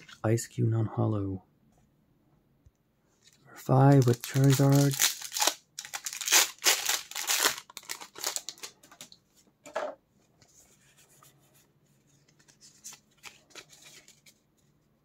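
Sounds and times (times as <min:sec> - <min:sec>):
foil wrapper tearing: 0:03.9 - 0:08.8.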